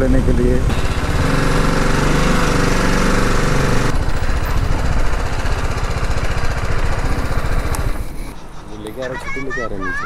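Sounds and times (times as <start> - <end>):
motorcycle engine running: 0.6 - 8.2.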